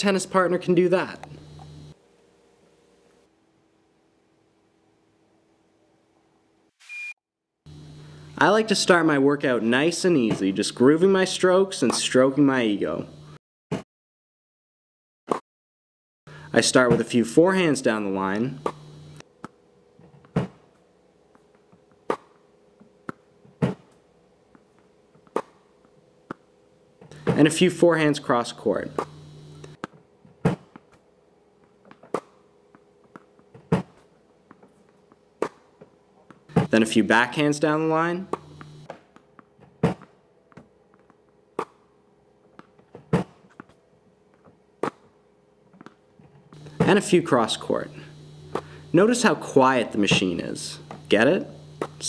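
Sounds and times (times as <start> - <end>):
faint steady hum: 0.0 - 6.4, 7.7 - 13.4, 16.3 - 19.9, 26.6 - 29.8, 36.4 - 38.9, 46.6 - 52.0
racket hitting tennis balls: 18.6 - 19.6, 25.2 - 25.7, 28.9 - 29.9, 38.3 - 41.9, 46.6 - 52.0.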